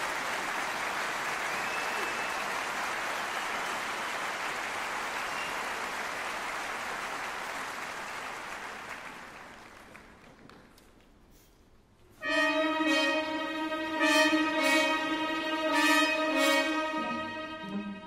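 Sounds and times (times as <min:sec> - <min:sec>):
audience applause: 0:00.0 - 0:10.9.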